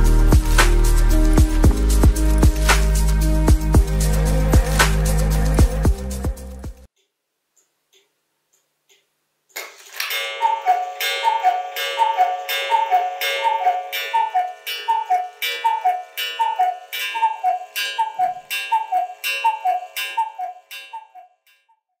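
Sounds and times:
cuckoo clock call: 0.0s - 5.8s, 9.9s - 21.9s.

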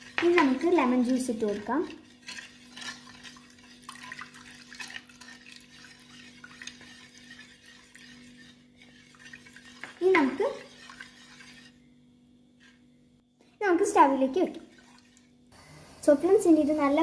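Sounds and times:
metal spoon stirring in a pan: 0.0s - 11.9s, 12.6s - 12.8s, 14.5s - 15.4s
liquid pouring into a pan: 2.0s - 9.9s, 14.6s - 15.3s.

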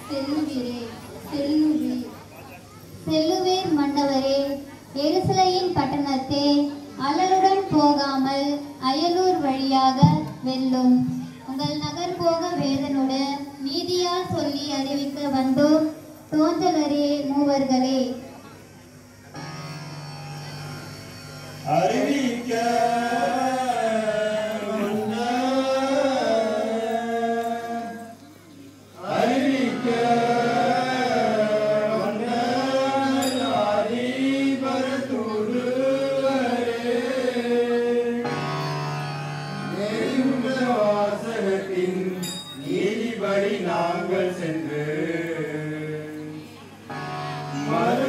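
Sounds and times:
steady drone: 19.3s - 28.2s, 28.9s - 42.2s, 42.8s - 48.0s
person singing ornamented melody: 21.7s - 28.2s.

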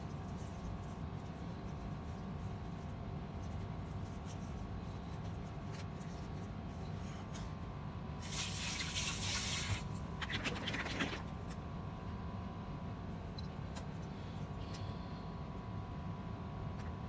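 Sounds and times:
faint steady hum: 0.0s - 17.0s
crackly splashing: 8.2s - 11.6s.

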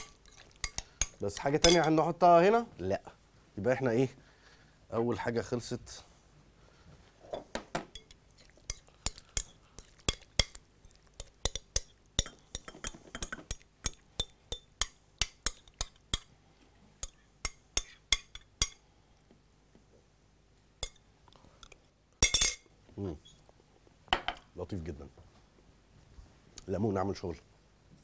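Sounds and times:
utensil clinking on glass bowl: 0.0s - 2.0s, 7.9s - 10.6s, 11.2s - 16.3s.

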